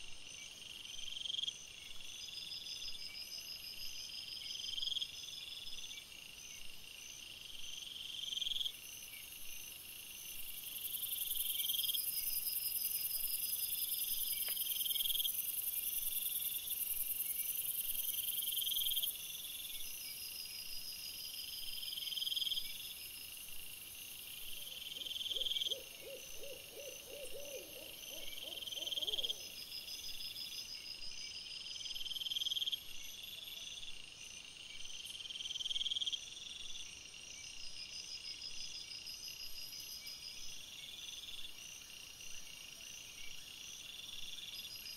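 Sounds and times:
low rapid insect pulses: 0.2s - 44.9s
insects trilling: 24.4s - 30.8s.

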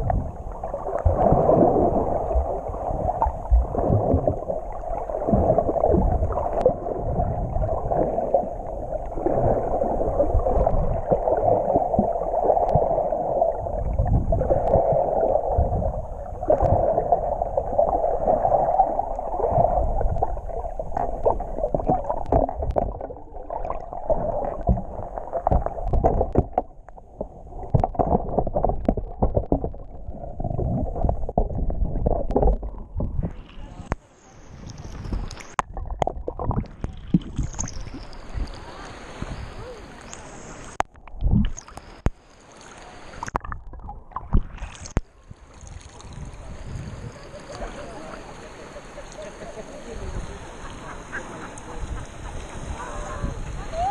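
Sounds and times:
low rumbles: 0.0s - 38.6s
underwater water rushing: 0.0s - 53.9s.

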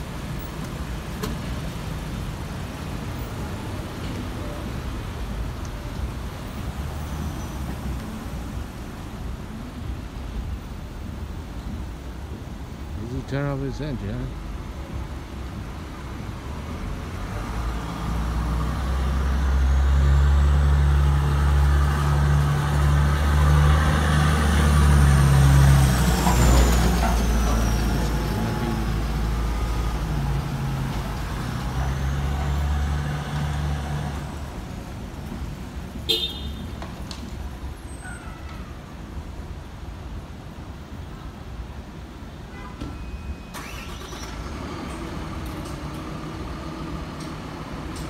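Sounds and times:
diesel truck driving past: 17.2s - 34.7s.

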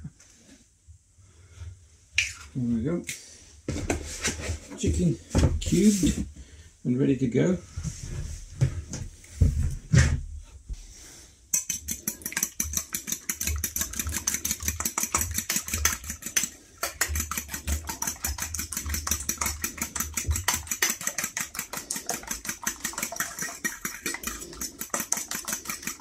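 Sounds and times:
fork beating egg in bowl: 11.5s - 26.0s.

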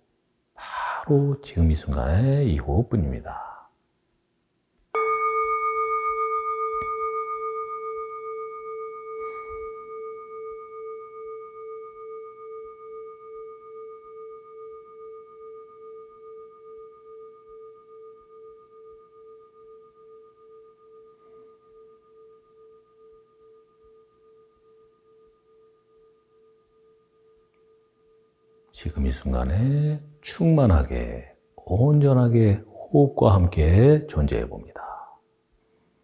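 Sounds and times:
meditation bell ringing: 4.9s - 32.4s.

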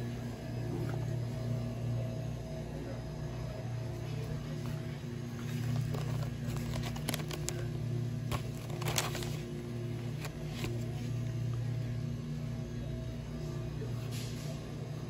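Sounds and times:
steady low hum: 0.0s - 15.0s
paper packets crinkling: 5.4s - 11.1s.

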